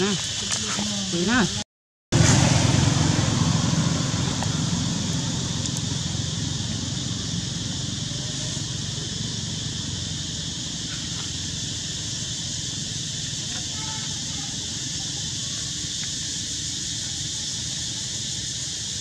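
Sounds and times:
low rumble: 2.2s - 13.4s
high hiss: 2.2s - 19.0s.

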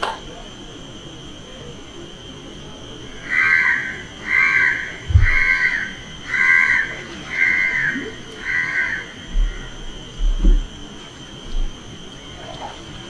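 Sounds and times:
low thump: 5.1s - 5.5s, 10.2s - 10.7s.

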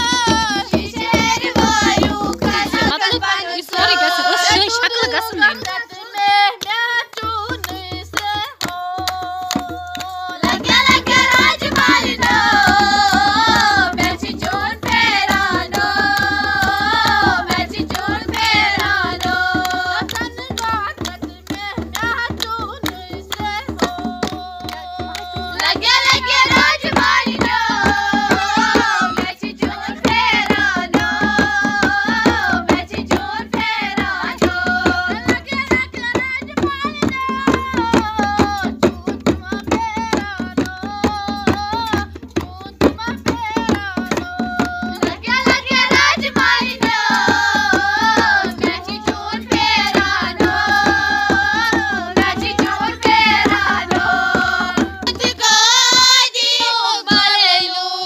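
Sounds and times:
clay goblet drums: 0.0s - 57.8s
women singing together: 0.0s - 58.0s
hand clapping: 1.3s - 27.2s.

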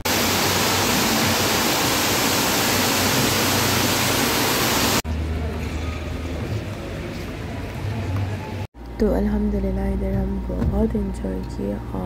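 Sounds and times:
fountain water splashing into pool: 0.0s - 5.0s.

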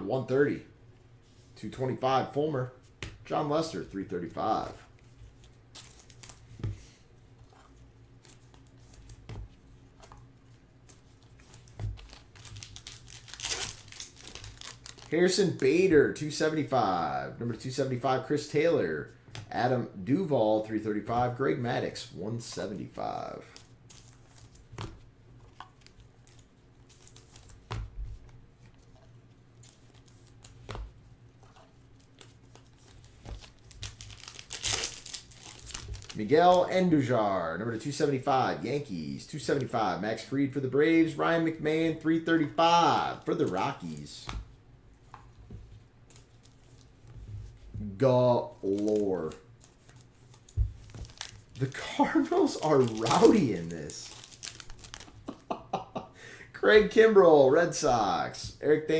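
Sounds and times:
trading cards being flipped: 48.5s - 55.5s.

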